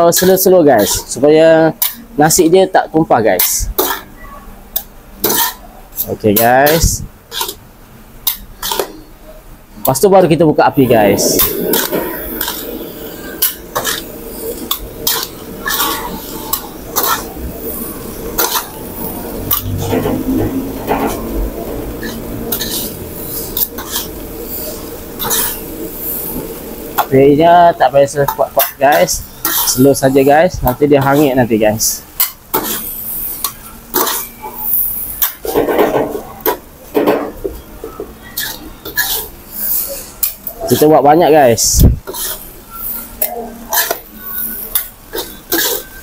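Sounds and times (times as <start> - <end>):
metal utensils scraping a wok: 0.1 - 2.1, 3.3 - 4.1, 5.2 - 7.6, 8.2 - 9.1, 10.9 - 36.6, 38.2 - 46.0.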